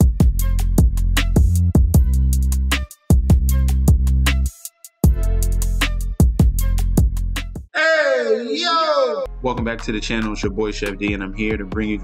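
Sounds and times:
electronic music with bass and drums: 0.0 - 7.7.

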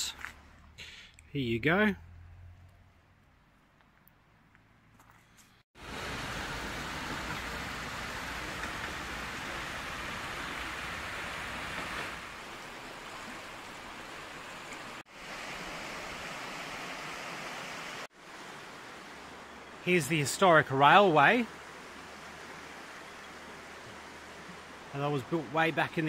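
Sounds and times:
river flowing: 5.8 - 26.0.

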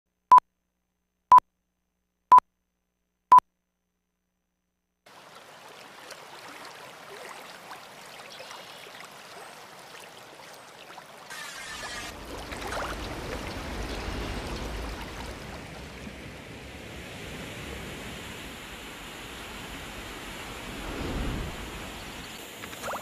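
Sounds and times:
small waves splashing: 5.1 - 23.0.

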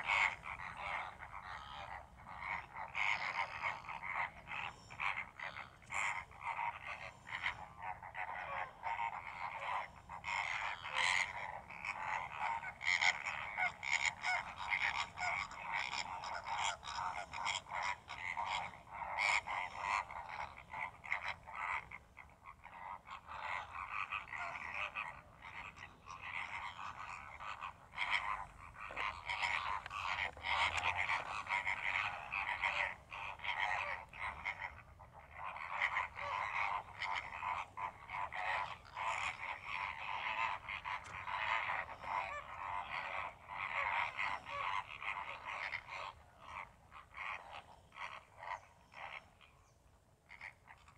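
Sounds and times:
flamingos croaking calls: 0.0 - 50.9.

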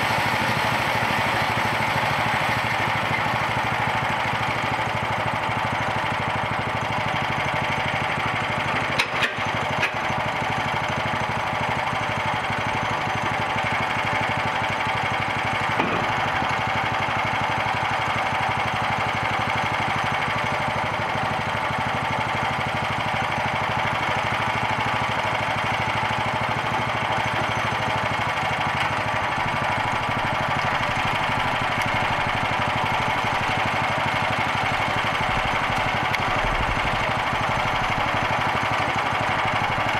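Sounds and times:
small gasoline engine running: 0.0 - 39.9
sharp knocks: 15.8 - 16.2.

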